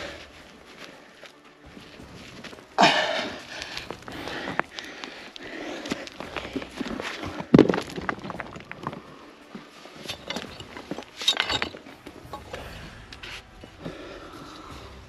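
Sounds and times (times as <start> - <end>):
scraping of soil: 0.0 - 15.0
stones knocking and clinking: 3.2 - 13.8.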